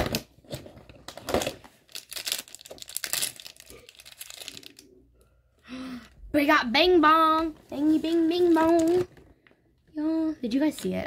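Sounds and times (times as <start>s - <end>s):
packaging rustling: 0.0s - 4.8s, 8.0s - 9.5s
packaging tearing: 1.1s - 4.8s.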